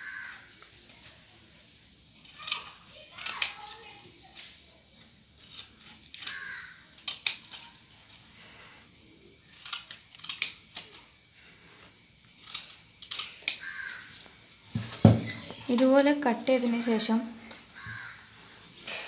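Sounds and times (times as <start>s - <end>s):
scissors snipping paper: 2.2s - 3.9s.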